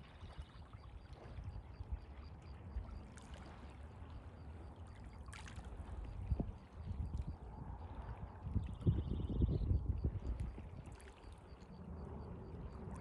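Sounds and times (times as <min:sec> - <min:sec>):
water lapping and trickling: 0:00.0 - 0:13.0
wind on microphone: 0:05.7 - 0:13.0.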